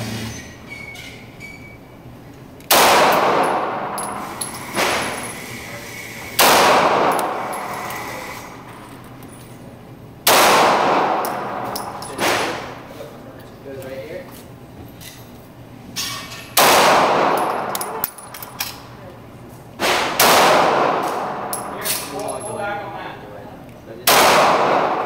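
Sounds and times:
pistol shots echoing indoors: 0:02.6 - 0:05.4, 0:06.3 - 0:09.0, 0:10.2 - 0:12.9, 0:16.5 - 0:19.0, 0:19.8 - 0:22.4, 0:24.0 - 0:25.0.

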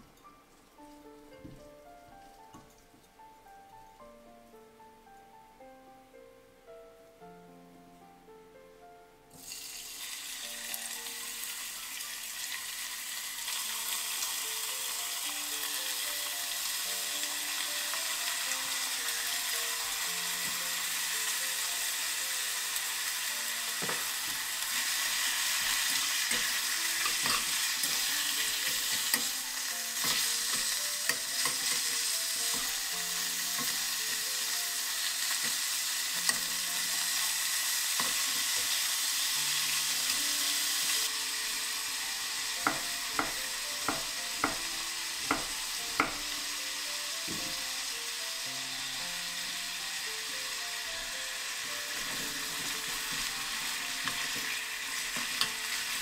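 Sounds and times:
meat sizzling in oil: 0:09.4 - 0:56.0
chopsticks tapping pan: 0:23.7 - 0:24.5, 0:25.6 - 0:29.4, 0:30.0 - 0:34.2, 0:36.2 - 0:36.9, 0:38.0 - 0:38.8, 0:42.6 - 0:46.3, 0:52.0 - 0:55.7.

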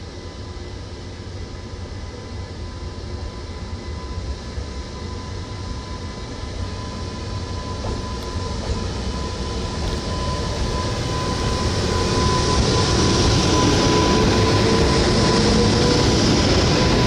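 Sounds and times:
thin steady whine: 0:00.0 - 0:17.0
electric locomotive passing: 0:05.9 - 0:17.0.

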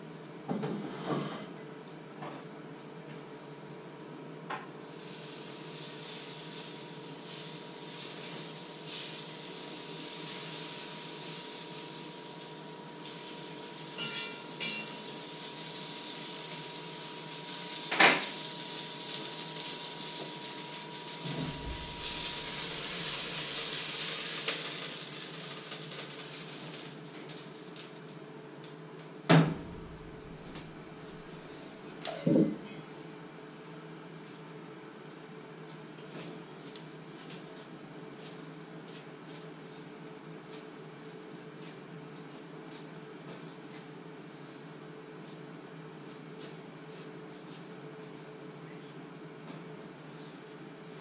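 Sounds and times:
food sizzling in a pan: 0:04.8 - 0:28.0
metallic clanks of utensils: 0:14.0 - 0:15.0.

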